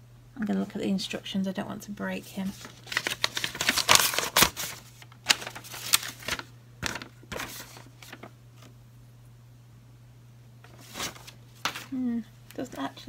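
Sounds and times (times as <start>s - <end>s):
paper crinkling and rustling: 2.4s - 8.8s, 10.6s - 12.0s.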